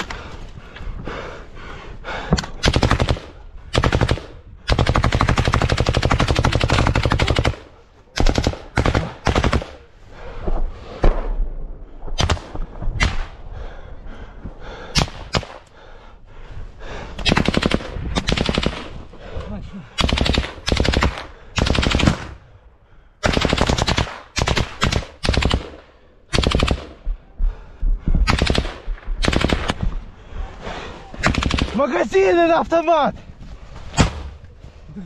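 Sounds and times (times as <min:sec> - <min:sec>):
assault rifle automatic fire: 0:02.6 - 0:09.8, 0:17.3 - 0:18.9, 0:20.0 - 0:22.3, 0:23.2 - 0:26.9, 0:28.3 - 0:29.8, 0:31.2 - 0:31.8.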